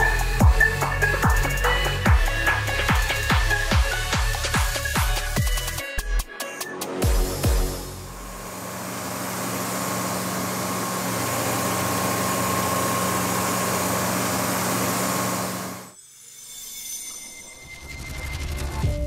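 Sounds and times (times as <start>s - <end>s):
heavy machinery engine hum: 8.0s - 16.0s.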